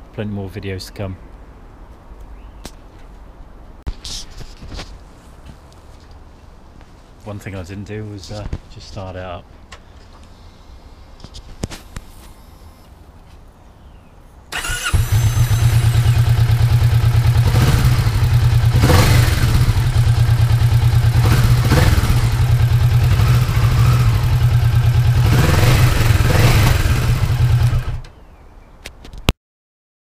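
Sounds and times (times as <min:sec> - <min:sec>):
motorcycle engine starting and revving: 0:14.5 - 0:28.2.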